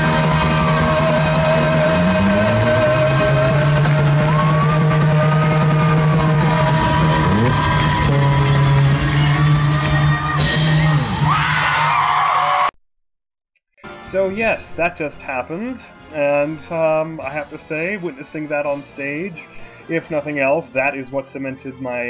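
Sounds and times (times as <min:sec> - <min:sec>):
sustained sliding guitar notes: 0:00.0 - 0:11.3.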